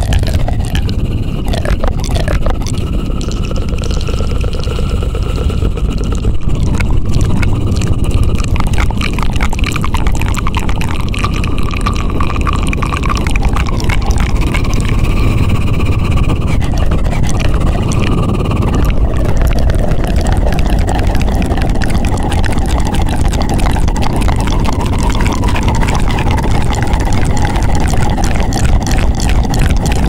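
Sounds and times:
low rumble: 0.0s - 30.0s
rapid clicking and rubbing: 0.0s - 30.0s.

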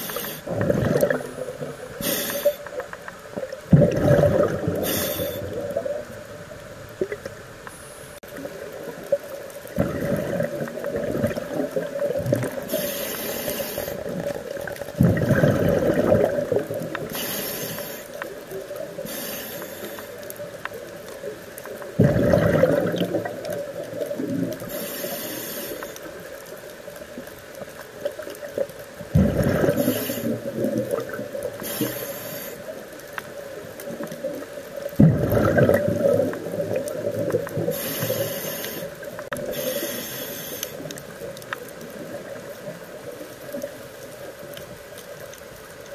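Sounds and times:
regulator inhale hiss: 0.0s - 0.6s, 1.6s - 2.9s, 4.7s - 5.8s, 12.0s - 14.5s, 17.0s - 20.5s, 24.6s - 26.3s, 29.7s - 30.6s, 31.5s - 33.0s, 37.6s - 41.2s
exhaled bubbles gurgling: 0.0s - 7.4s, 8.3s - 26.4s, 27.1s - 44.9s.

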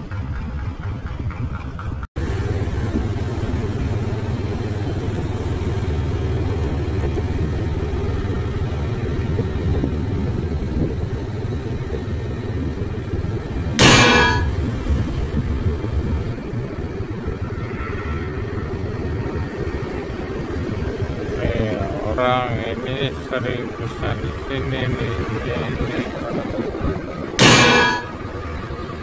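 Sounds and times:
motorcycle passing: 0.0s - 13.8s
vehicle engine rumble: 0.0s - 29.0s.

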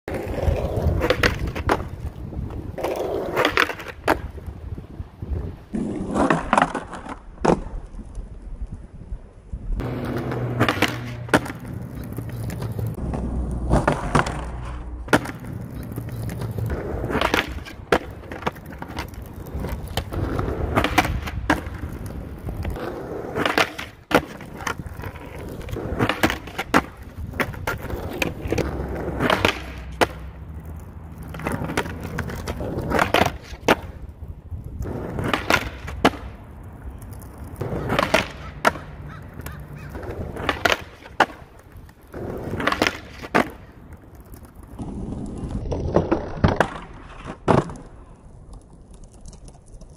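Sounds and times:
skateboard wheels rolling on asphalt: 0.0s - 49.9s
skateboard scraping along ledge: 0.1s - 49.9s
skateboard clacking on ledge: 9.8s - 34.0s, 34.8s - 44.9s.

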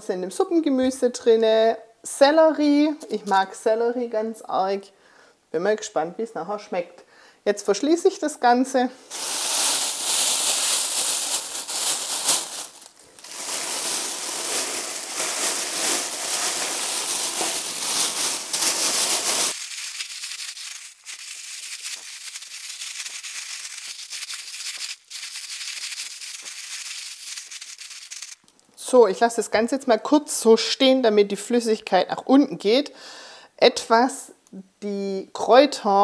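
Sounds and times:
plastic bag crinkling: 9.1s - 28.5s.

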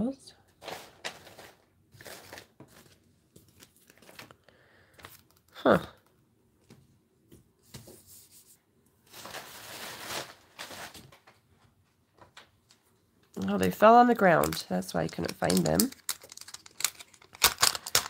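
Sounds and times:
paper and plastic rustling: 0.6s - 5.6s, 9.0s - 18.0s.

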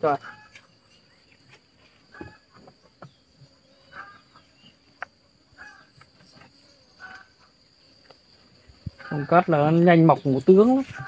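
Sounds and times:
animal calls: 1.8s - 7.6s.

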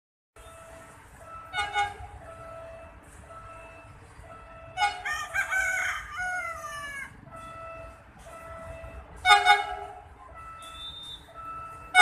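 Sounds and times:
rooster crowing: 5.0s - 7.1s.

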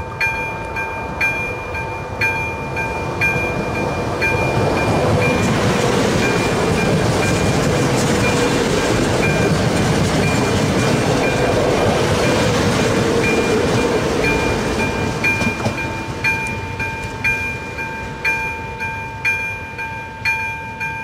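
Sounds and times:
electronic crossing bell dinging: 0.0s - 5.5s, 13.2s - 21.0s
train wheels rushing past: 0.0s - 19.0s.

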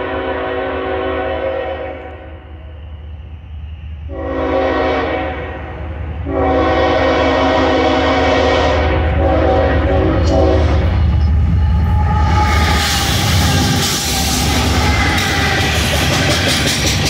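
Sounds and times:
locomotive air horn blasts: 0.0s - 2.4s, 4.1s - 11.0s
low rumble of train: 0.0s - 17.0s.

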